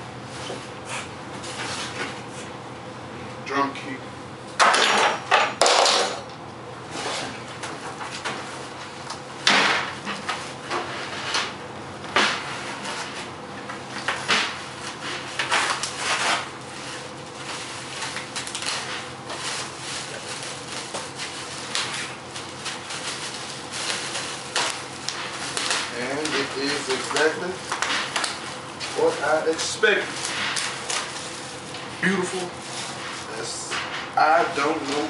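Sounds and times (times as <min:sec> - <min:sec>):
plastic bag rustling and crinkling: 0:15.6 - 0:35.0.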